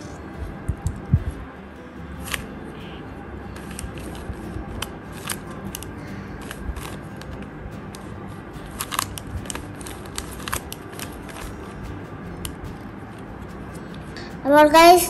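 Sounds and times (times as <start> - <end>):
puzzle clicking as turned: 4.8 - 8.0, 8.7 - 11.5.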